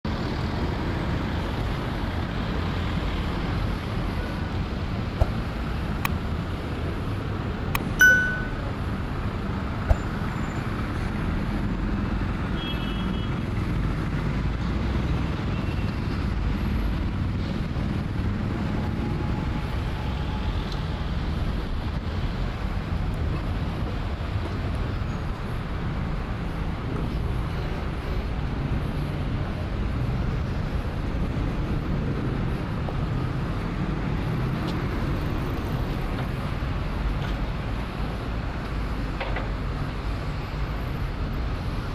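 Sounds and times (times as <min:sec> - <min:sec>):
road traffic rumble: 0:00.0 - 0:41.9
bright ringing clink: 0:08.0 - 0:08.7.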